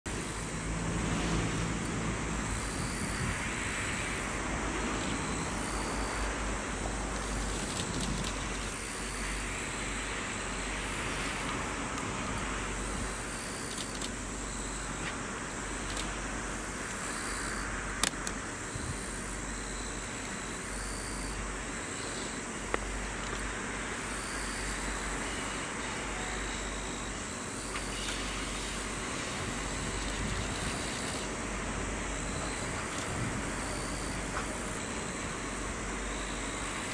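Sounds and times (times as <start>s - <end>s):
locomotive and wheels rumbling: 0.1s - 36.9s
sharp clicks: 7.1s - 8.9s, 16.8s - 18.4s.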